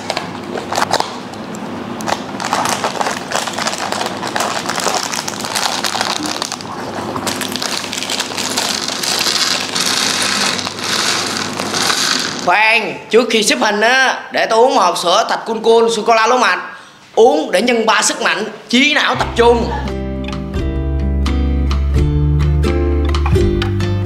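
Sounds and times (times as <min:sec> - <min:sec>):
plastic blocks clicking and rattling: 0:07.2 - 0:12.4.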